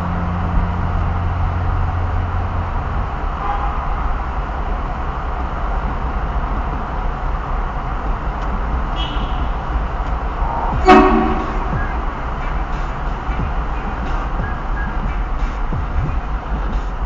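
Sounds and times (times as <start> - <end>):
car road and engine rumble: 0.0 - 17.0
loud air horn blast: 3.4 - 3.9, 10.7 - 12.2.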